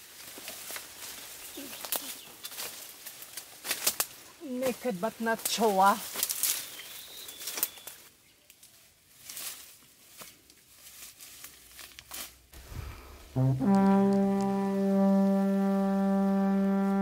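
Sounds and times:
footsteps through dry brush: 0:00.0 - 0:13.2
brass-like sliding music note: 0:12.6 - 0:17.0.

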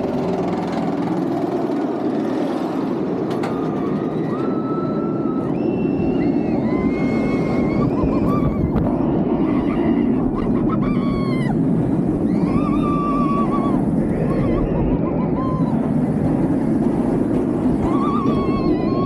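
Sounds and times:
roller coaster wind and wheels: 0:00.0 - 0:19.0
riders screaming: 0:03.5 - 0:16.3, 0:17.7 - 0:19.0.

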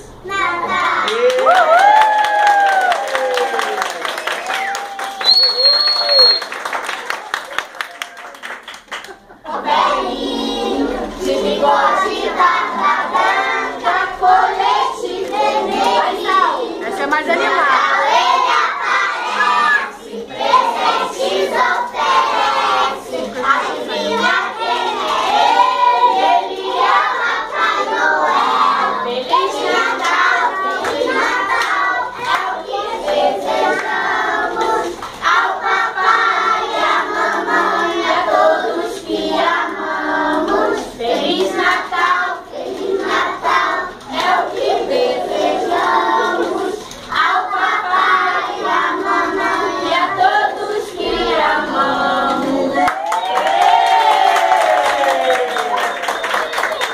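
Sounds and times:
children singing: 0:09.5 - 0:52.9
hand claps: 0:52.8 - 0:56.9.

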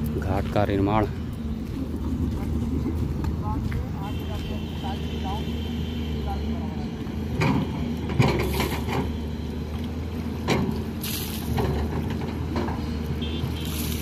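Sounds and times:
excavator diesel engine running: 0:00.0 - 0:14.0
excavator knocks and scrapes: 0:07.3 - 0:09.2, 0:10.4 - 0:14.0.

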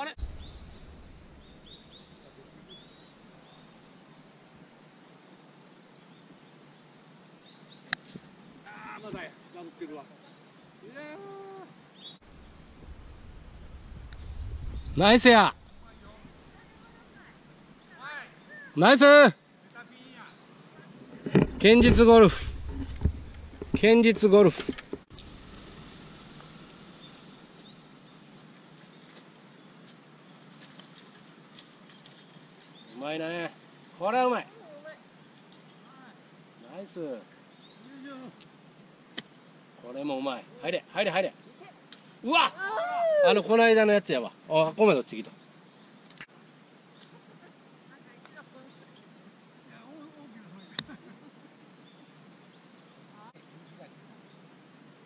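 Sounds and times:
birds chirping: 0:00.0 - 0:05.1, 0:05.9 - 0:38.4, 0:49.8 - 0:54.9
faint steady hiss: 0:00.0 - 0:55.0.

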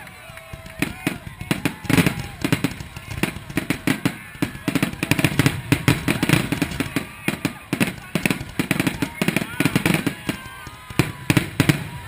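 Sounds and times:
fireworks bursting and crackling: 0:00.0 - 0:12.0.

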